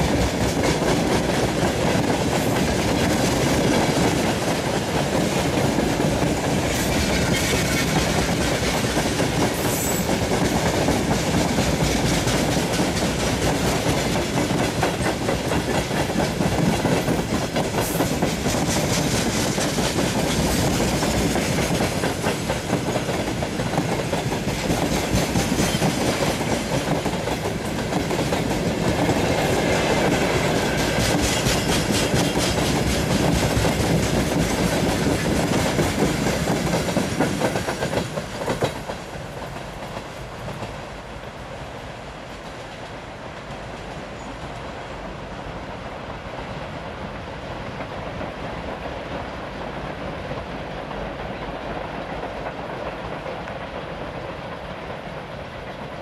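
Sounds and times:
wheels clicking over rail joints: 0:00.0 - 0:40.8
freight train rolling past: 0:00.0 - 0:56.0.

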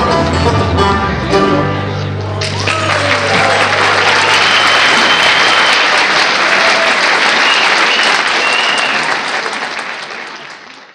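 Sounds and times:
band playing: 0:00.0 - 0:09.7
audience applauding loudly: 0:02.4 - 0:10.9.

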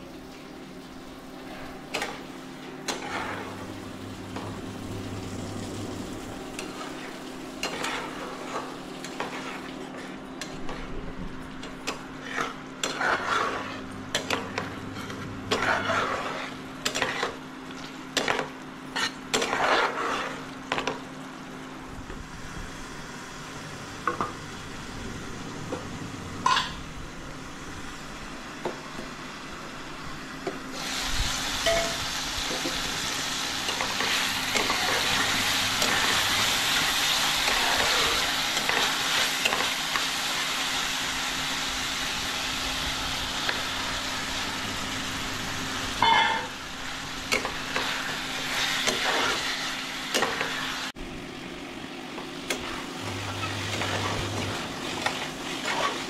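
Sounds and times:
steady hum: 0:00.8 - 0:19.4, 0:21.2 - 0:39.0
metal spatula scraping a pan: 0:02.9 - 0:03.5, 0:07.6 - 0:10.9, 0:11.9 - 0:17.4, 0:18.2 - 0:20.4, 0:46.0 - 0:46.5, 0:53.3 - 0:56.0.

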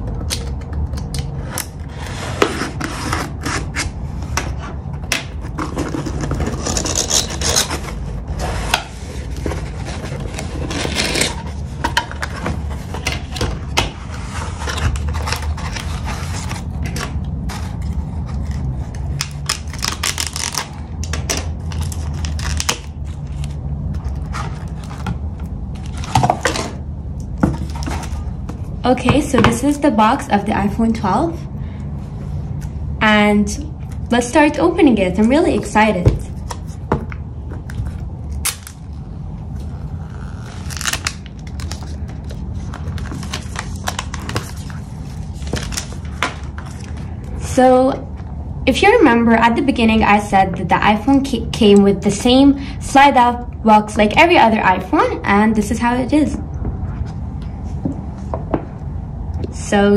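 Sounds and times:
cardboard tearing and rustling: 0:39.6 - 0:47.0.

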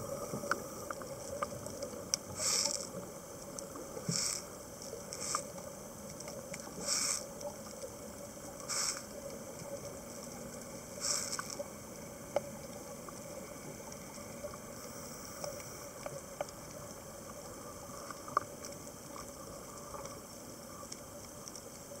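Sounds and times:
faint steady hum: 0:00.0 - 0:22.0
sharp underwater clicks: 0:00.3 - 0:14.6
underwater bubbly hisses: 0:02.3 - 0:03.0, 0:04.0 - 0:05.6, 0:06.6 - 0:07.4, 0:08.5 - 0:09.2, 0:10.9 - 0:11.7.

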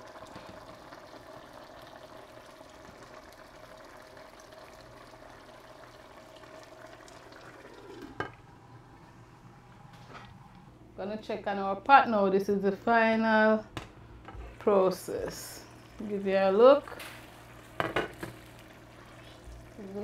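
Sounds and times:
pot bubbling and hissing: 0:00.0 - 0:10.8, 0:13.9 - 0:20.0.

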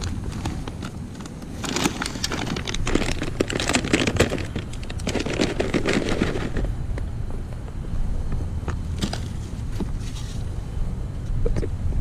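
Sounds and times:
plastic bag crinkling and rustling: 0:00.0 - 0:06.8.

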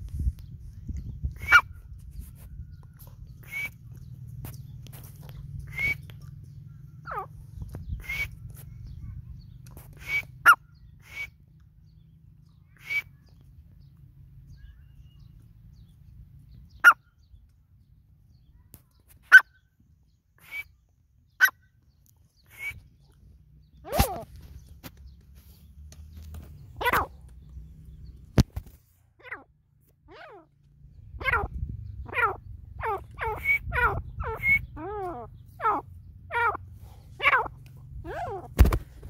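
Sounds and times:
francolin calls: 0:10.0 - 0:11.4, 0:16.7 - 0:17.0, 0:22.4 - 0:22.9, 0:31.1 - 0:38.5.

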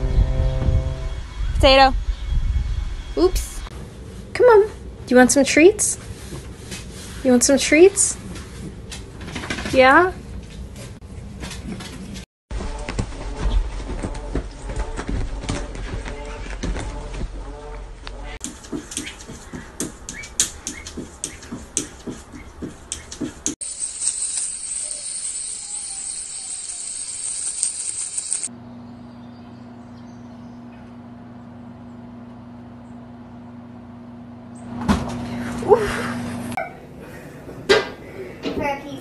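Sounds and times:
steady low hum: 0:00.0 - 0:07.2, 0:12.6 - 0:25.6
steady high hiss: 0:23.6 - 0:28.5.

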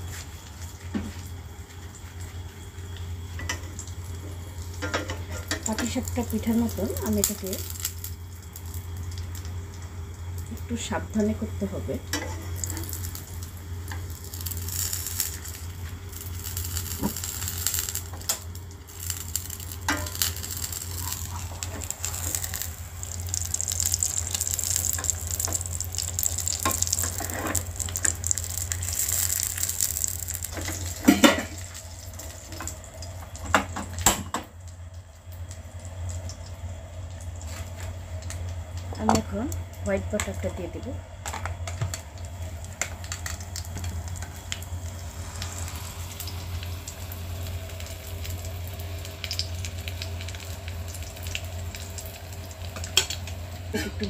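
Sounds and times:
batter frying hiss: 0:00.0 - 0:54.0.

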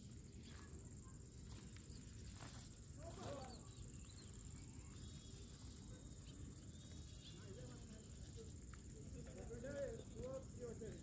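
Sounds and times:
faint bird chirps: 0:00.0 - 0:08.6.

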